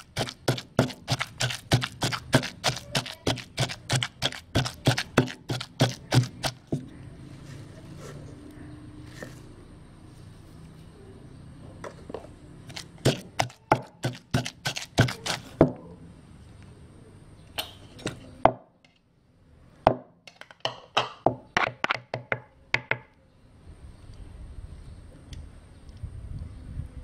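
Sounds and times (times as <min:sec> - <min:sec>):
wooden pestle pounding in mortar: 0:00.0 - 0:06.9, 0:12.7 - 0:15.8.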